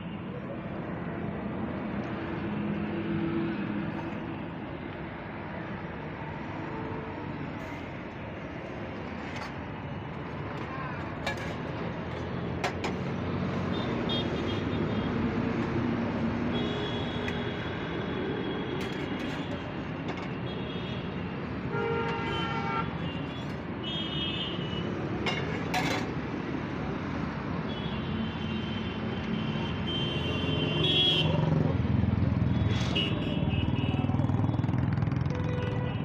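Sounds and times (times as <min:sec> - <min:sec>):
roadside traffic noise: 0:00.0 - 0:36.0
vehicle horns honking: 0:21.7 - 0:24.8, 0:27.7 - 0:31.4.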